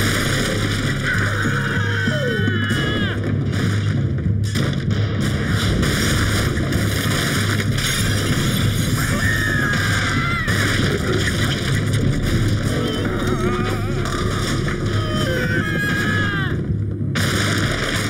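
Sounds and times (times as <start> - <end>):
cartoon crashing rumble: 4.9 - 18.0.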